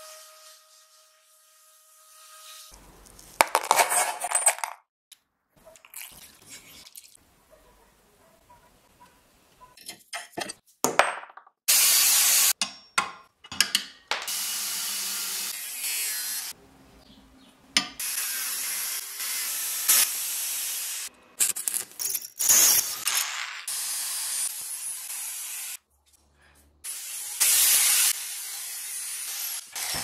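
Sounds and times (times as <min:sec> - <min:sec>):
metal tools scraping and clattering: 0:03.5 - 0:04.8
angle grinder cutting steel: 0:14.3 - 0:16.6, 0:18.0 - 0:21.1, 0:26.9 - 0:30.0.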